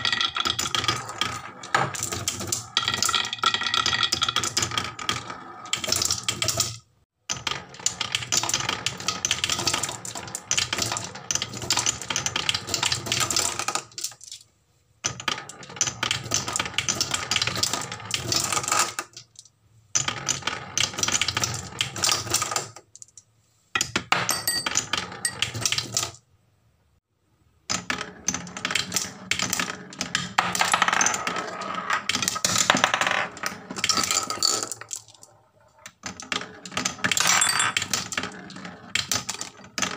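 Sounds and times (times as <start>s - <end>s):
marbles clattering on wood: 23.8s - 25.9s, 27.7s - 39.9s.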